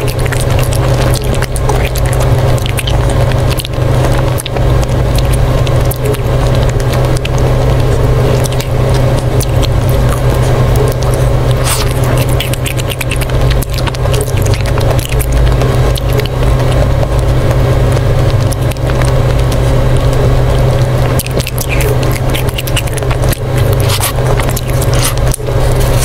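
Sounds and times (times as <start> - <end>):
wet mouth clicks and smacking: 0.0 - 20.2, 20.8 - 26.0
ice cream bar crunching: 0.0 - 26.0
steady low hum: 0.0 - 26.0.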